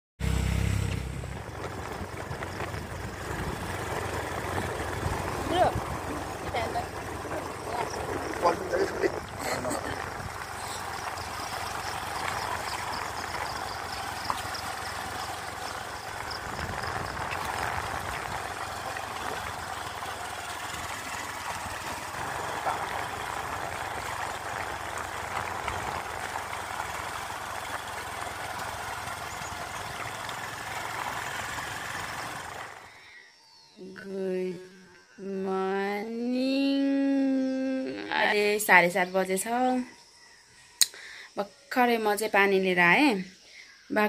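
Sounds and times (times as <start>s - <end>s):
motorcycle engine running: 0.2s - 33.0s
road and wind noise: 0.2s - 33.0s.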